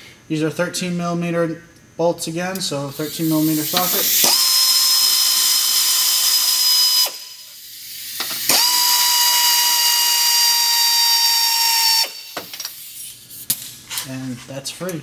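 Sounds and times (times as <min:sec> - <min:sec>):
air ratchet whine with hiss: 0:02.8 - 0:14.1.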